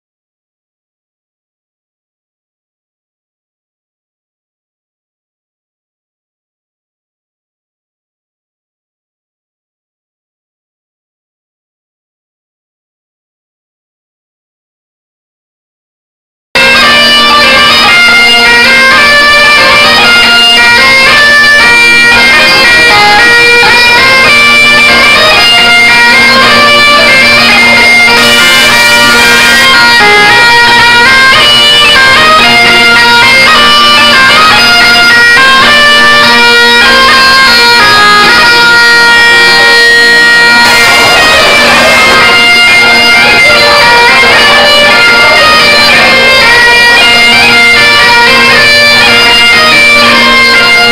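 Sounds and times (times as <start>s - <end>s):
bagpipes playing folk dance tune: 16.6s - 50.9s.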